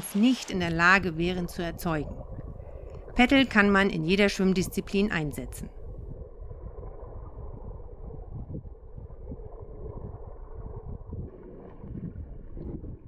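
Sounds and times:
underwater churning of water: 5.8 - 13.0.

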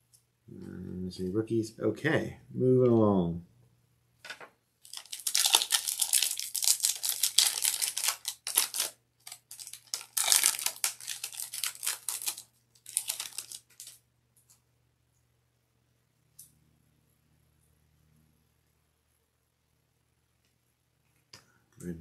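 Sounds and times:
foil wrapper crinkling and tearing: 4.8 - 14.0.

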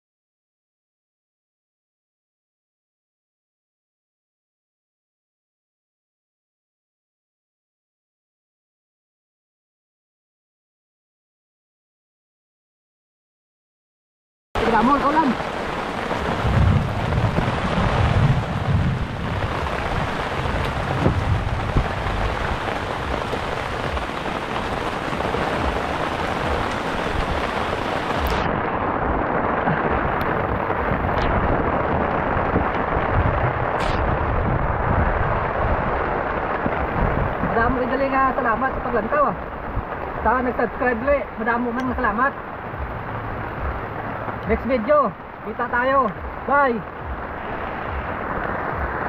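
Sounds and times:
low rumbling: 14.6 - 37.9, 38.9 - 49.0
heavy rain on water: 14.6 - 49.0.

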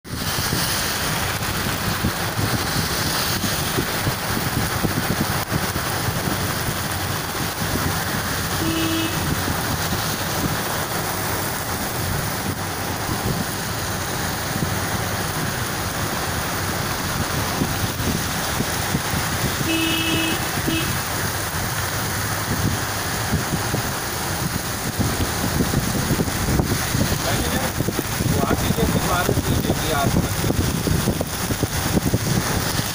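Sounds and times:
heavy rain on wet road: 0.1 - 32.9
traffic passing: 0.1 - 32.9
car horn beeping: 8.5 - 9.4, 19.6 - 21.1.

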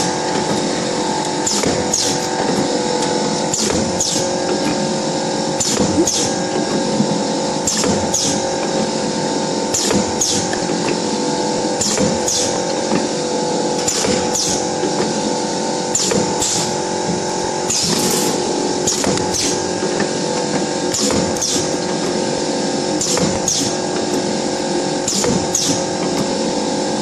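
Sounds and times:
machine motor hum: 0.0 - 27.0.

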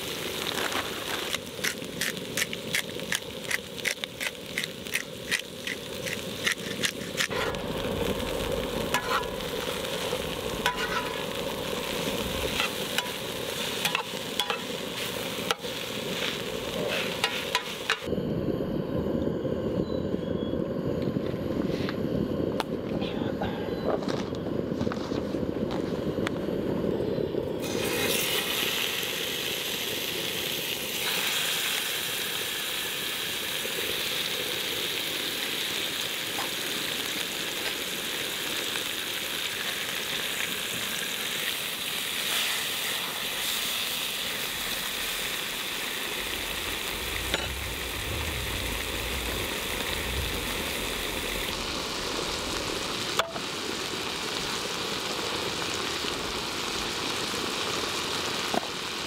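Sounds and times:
food sizzling in a pan: 0.0 - 18.1, 27.1 - 59.0.

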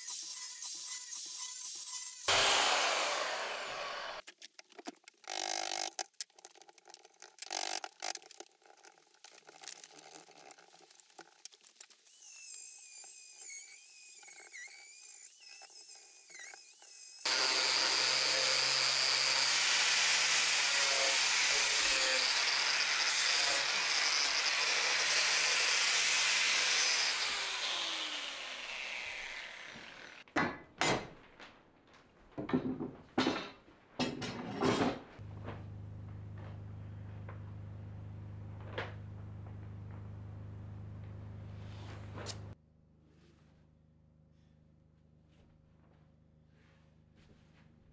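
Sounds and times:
angle grinder cutting wood: 0.0 - 4.2, 12.1 - 30.3.

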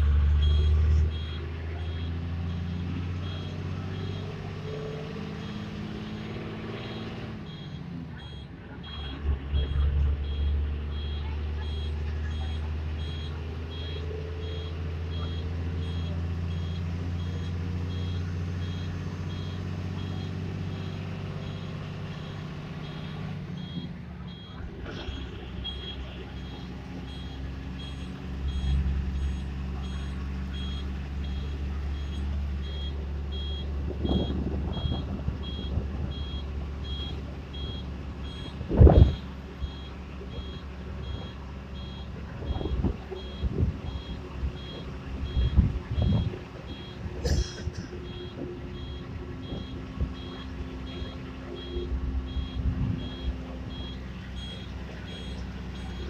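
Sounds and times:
bus engine droning: 0.0 - 56.0.

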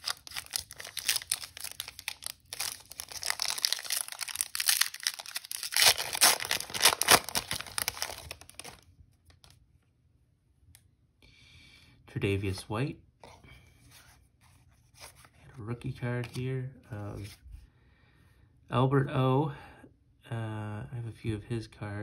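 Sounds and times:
foil wrapper tearing and crinkling: 0.0 - 8.8.

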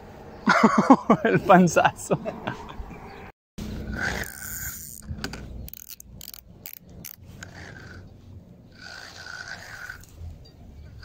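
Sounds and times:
fishing reel clicking: 3.9 - 8.0.

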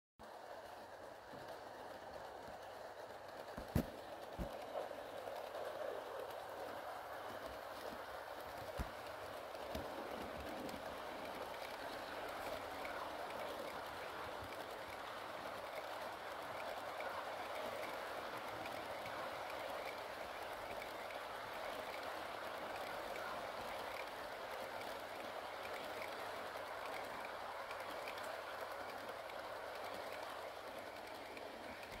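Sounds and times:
model train whirring on track: 0.2 - 32.0
faint ticks: 7.3 - 32.0.

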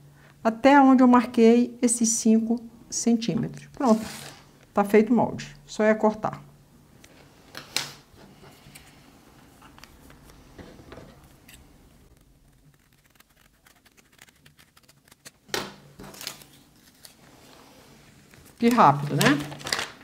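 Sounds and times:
scissors cutting paper: 12.2 - 15.4.

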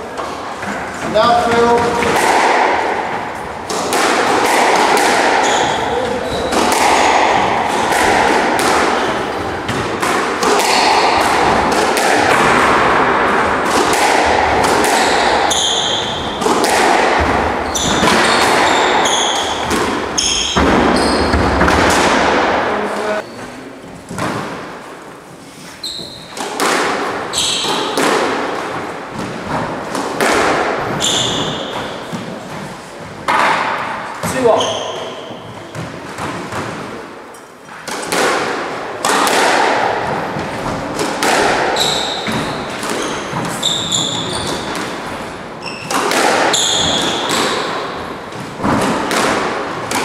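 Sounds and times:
squash ball hitting rackets: 0.0 - 23.2, 23.9 - 25.2, 25.8 - 50.0
ball thudding against walls: 0.6 - 22.7
shoes squeaking on wooden floor: 5.4 - 7.0, 15.1 - 16.5, 17.4 - 21.7, 25.4 - 26.4, 27.3 - 28.0, 30.8 - 32.9, 34.2 - 35.9, 41.8 - 47.7.

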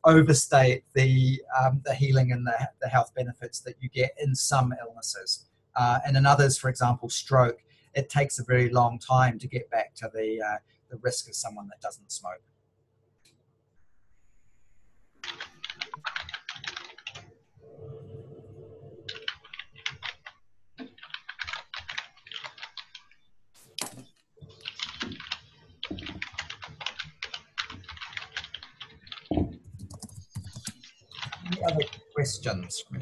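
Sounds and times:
typing on a keyboard: 15.2 - 17.3, 19.1 - 23.2, 23.8 - 32.2.

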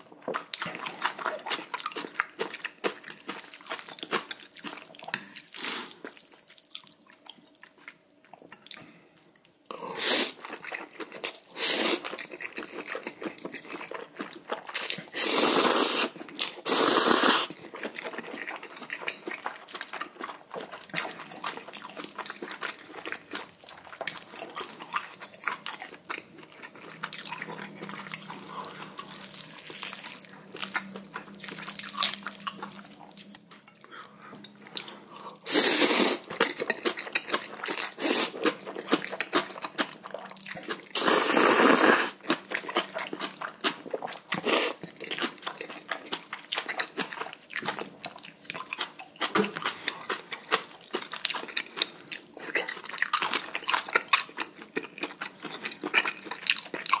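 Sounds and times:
wet chewing: 10.2 - 57.0
slurping noodles: 14.8 - 17.6, 35.4 - 36.4, 37.9 - 38.6, 41.0 - 42.2.

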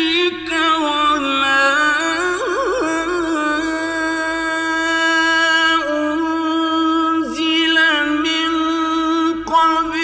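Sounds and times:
man reciting melodically: 0.0 - 10.0.

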